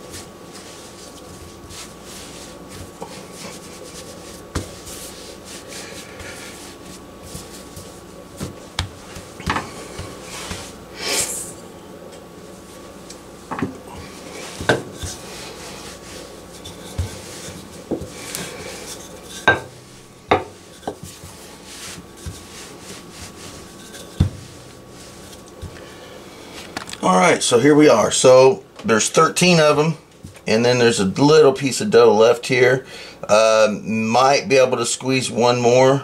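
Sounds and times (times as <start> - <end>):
hands kneading dough: 0.0 - 11.7, 12.3 - 28.3.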